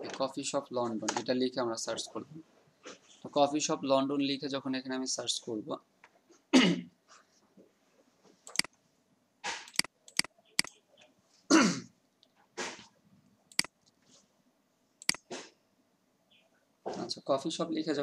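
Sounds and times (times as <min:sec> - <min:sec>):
person coughing: 0:06.5 - 0:06.9, 0:11.5 - 0:11.9
short sharp clicks: 0:08.5 - 0:08.7, 0:09.5 - 0:10.8, 0:15.0 - 0:15.5.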